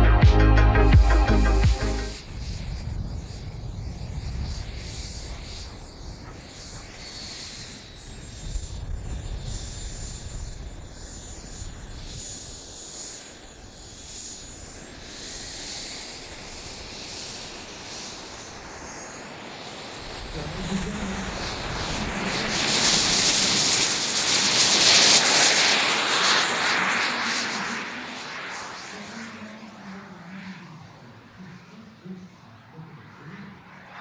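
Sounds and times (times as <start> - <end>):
low rumble: 0.0 - 2.2
model jet turbine whine: 1.3 - 34.0.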